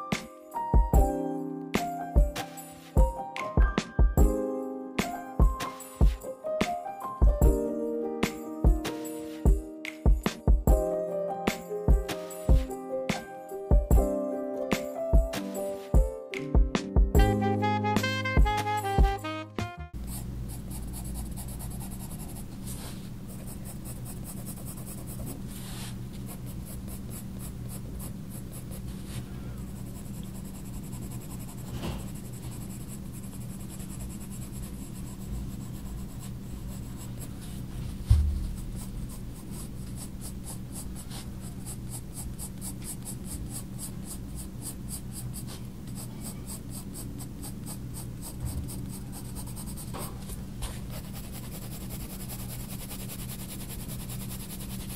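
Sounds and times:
low steady hum: 20.0s - 54.8s
pencil scratching on paper: 20.0s - 54.9s
dull thump: 37.9s - 38.9s.

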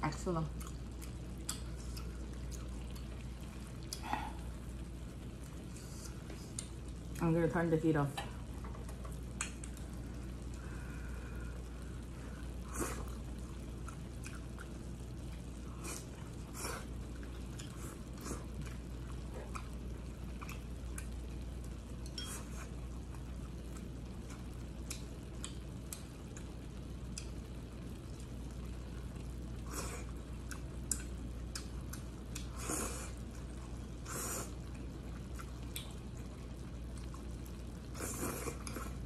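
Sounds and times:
steady low hum: 0.0s - 39.0s
wet chewing: 0.5s - 4.5s, 12.7s - 21.2s, 22.1s - 26.5s, 27.1s - 27.4s, 28.1s - 33.7s, 34.3s - 36.3s.

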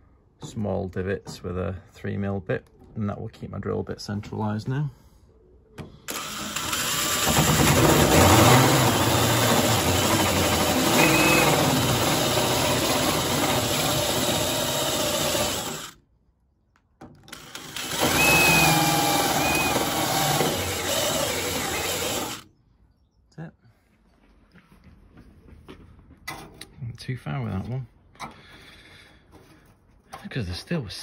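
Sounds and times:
electric drill boring into sheet steel: 6.1s - 16.0s, 17.3s - 22.4s.

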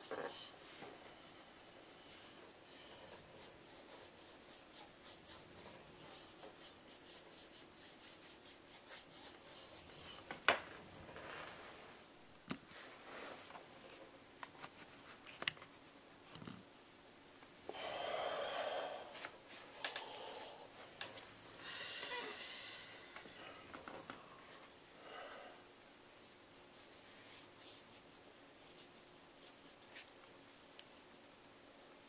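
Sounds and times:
paintbrush stroking on canvas: 2.8s - 10.3s, 12.7s - 14.0s, 26.1s - 30.1s.

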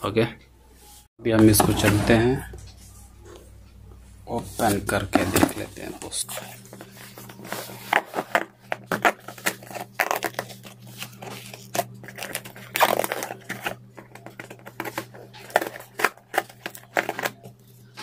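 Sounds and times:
steady low hum: 0.0s - 18.0s
cardboard and tape ripping: 7.7s - 17.4s.

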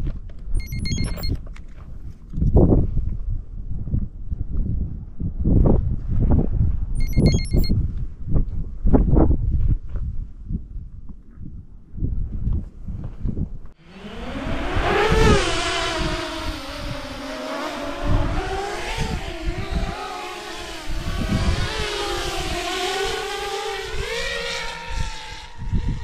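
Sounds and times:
drone propellers whining: 0.6s - 1.3s, 7.0s - 7.7s, 13.8s - 26.0s.

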